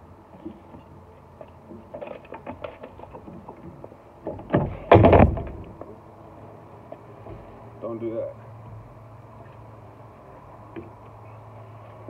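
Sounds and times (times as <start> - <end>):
loud low thump: 4.5 - 5.8.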